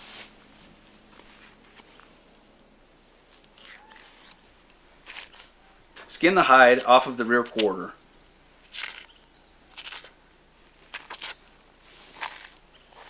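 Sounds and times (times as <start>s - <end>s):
background hiss: 0.0s - 9.6s.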